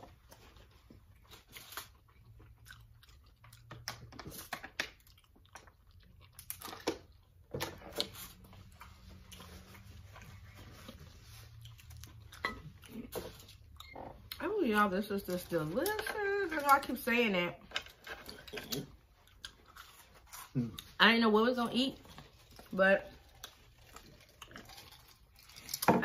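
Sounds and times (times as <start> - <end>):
close chewing and lip smacks: 0.0 - 14.5, 17.9 - 21.0, 22.0 - 25.9.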